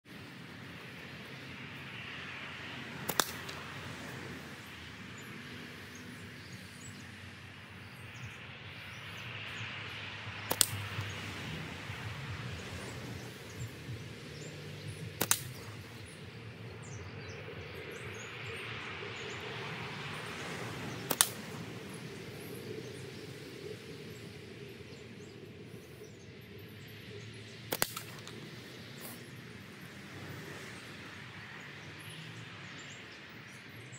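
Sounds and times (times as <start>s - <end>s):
outdoor background noise: 0.0s - 33.9s
slingshot bands snapping: 3.0s - 3.9s, 10.5s - 11.3s, 15.2s - 16.0s, 21.0s - 21.8s, 27.7s - 29.2s.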